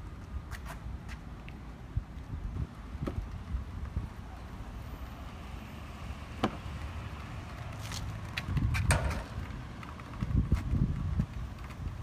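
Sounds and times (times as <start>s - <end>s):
low outdoor rumble: 0.0s - 12.0s
clicks and scuffs on ladder rungs: 0.4s - 2.2s, 6.4s - 12.0s.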